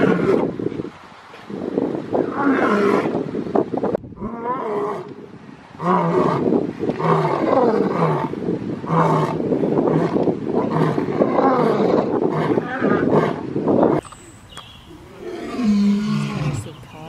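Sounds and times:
lion roaring: 0:05.8 - 0:13.4, 0:15.1 - 0:16.7.

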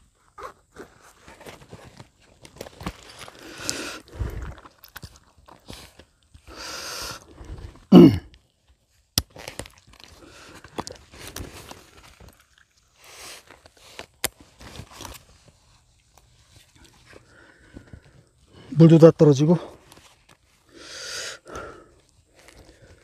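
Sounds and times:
bag and straps rustling: 0:00.0 - 0:06.6, 0:07.2 - 0:18.7
person grunting: 0:07.9 - 0:08.3.

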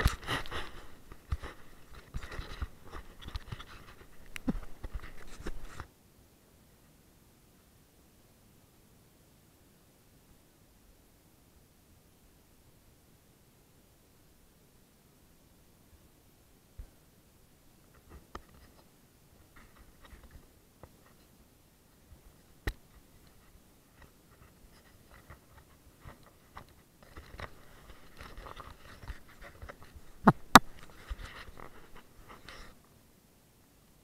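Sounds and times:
scraping on camera mount: 0:00.0 - 0:05.9, 0:24.0 - 0:32.8.

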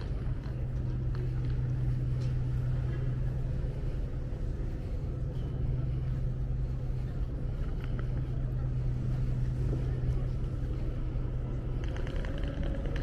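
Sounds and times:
low hum of machinery: 0:00.0 - 0:13.0.

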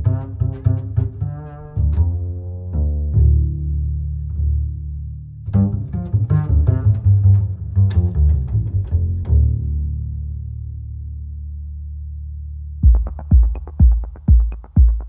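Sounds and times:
low string notes: 0:00.0 - 0:15.0
quick plucked notes: 0:12.8 - 0:15.0.

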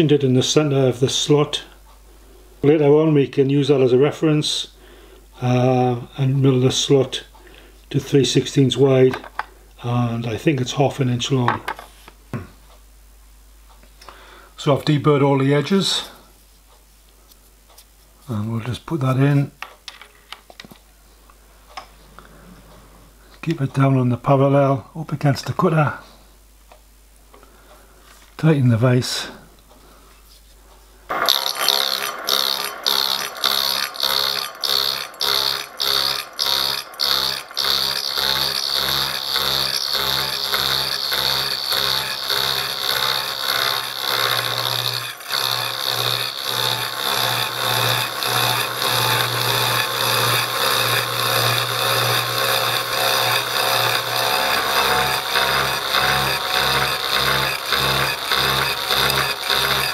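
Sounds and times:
metal cutting whine: 0:31.1 - 0:59.9
milling machine motor hum: 0:31.1 - 0:59.9.

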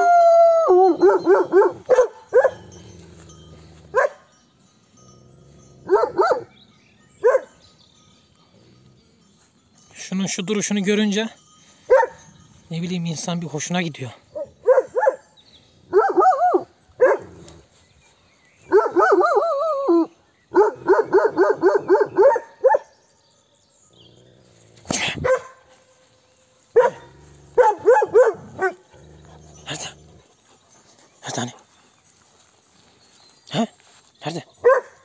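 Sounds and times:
dog barking: 0:01.0 - 0:02.6, 0:03.9 - 0:04.3, 0:05.9 - 0:06.5, 0:07.2 - 0:07.6, 0:11.9 - 0:12.3, 0:14.4 - 0:15.2, 0:15.9 - 0:17.4, 0:18.7 - 0:19.6, 0:20.5 - 0:22.9, 0:25.2 - 0:25.7, 0:26.7 - 0:28.9, 0:34.6 - 0:35.0
dog baying: 0:26.8 - 0:30.4.

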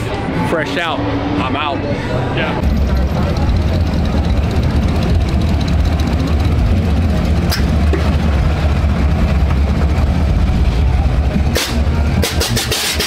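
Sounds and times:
large vehicle engine idling: 0:00.0 - 0:13.0.

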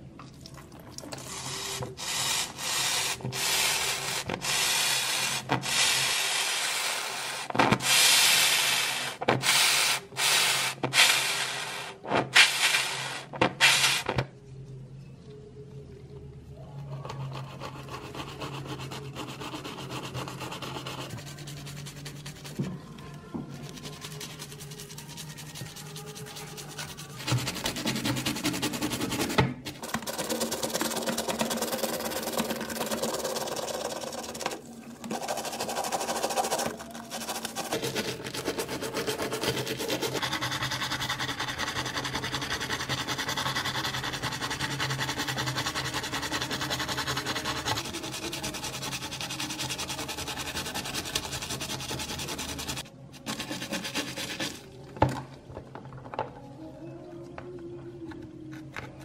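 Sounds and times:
brush scrubbing in foamy water: 0:23.6 - 0:29.3, 0:29.9 - 0:54.8.

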